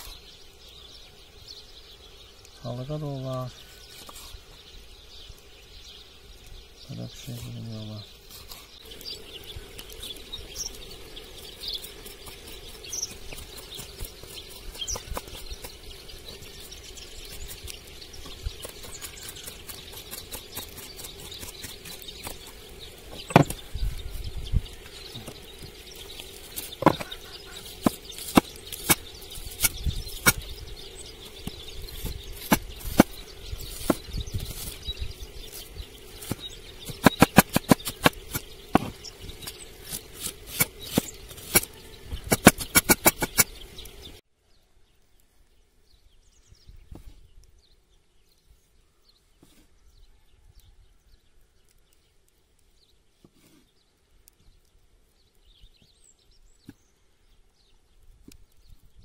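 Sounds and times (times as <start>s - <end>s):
knife chopping on wooden board: 23.3s - 23.6s, 26.8s - 27.1s, 40.2s - 43.5s.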